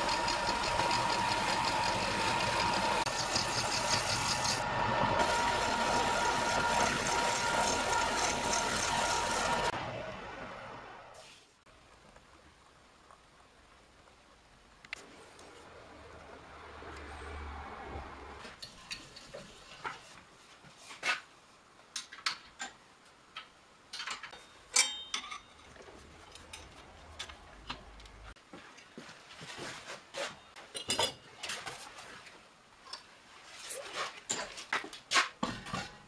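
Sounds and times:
metal tools clicking and clinking: 23.9s - 26.7s
ringing metal clank: 24.3s - 25.7s.

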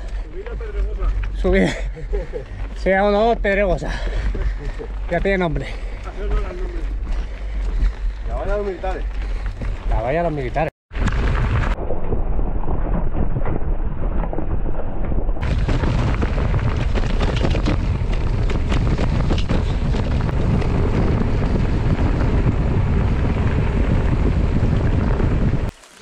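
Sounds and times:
mountain bike rattling on gravel: 0.0s - 11.8s, 15.4s - 26.0s
wind buffeting microphone: 0.0s - 25.7s
stones knocking: 15.4s - 20.8s.

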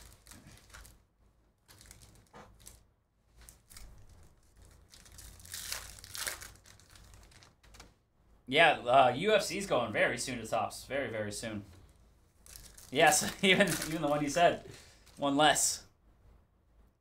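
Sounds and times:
foil wrapper tearing and crinkling: 0.0s - 1.0s, 1.7s - 2.8s, 3.4s - 7.7s, 12.4s - 14.4s.

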